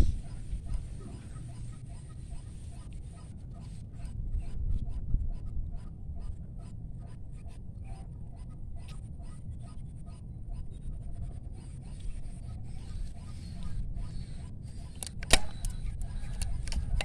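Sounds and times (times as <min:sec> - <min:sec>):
scratchy handling clicks and rubbing: 0:14.9 - 0:17.0.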